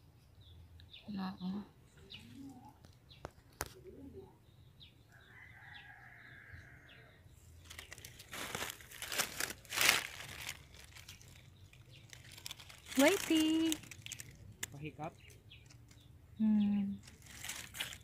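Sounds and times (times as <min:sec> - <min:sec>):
dry leaves rustling and crunching: 0:07.6 - 0:16.0, 0:17.0 - 0:18.0.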